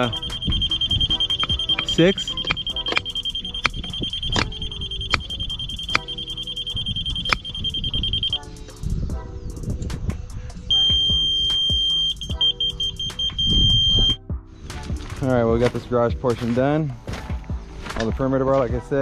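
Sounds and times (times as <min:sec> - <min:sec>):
rapid beeps: 0:00.0 - 0:08.6, 0:10.7 - 0:14.2
steady high tone: 0:00.0 - 0:08.6, 0:10.7 - 0:14.2.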